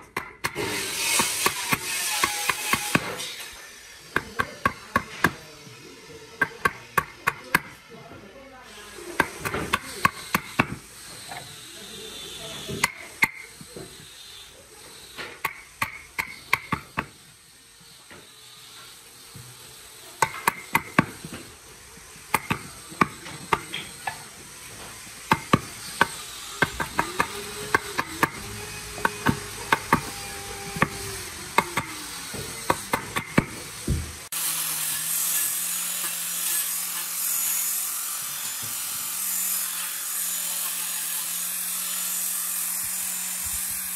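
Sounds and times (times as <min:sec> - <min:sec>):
hammer striking chisel: 0:00.0 - 0:03.3, 0:04.1 - 0:05.4, 0:06.4 - 0:07.8, 0:09.2 - 0:11.4, 0:12.7 - 0:13.9, 0:15.2 - 0:17.1, 0:20.2 - 0:21.4, 0:22.3 - 0:24.2, 0:25.3 - 0:34.0
angle grinder running: 0:00.6 - 0:43.9.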